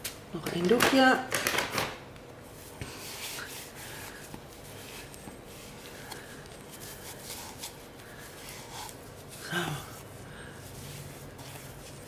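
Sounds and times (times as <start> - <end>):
cloth rubbing rubber bowl: 6.6 - 12.0.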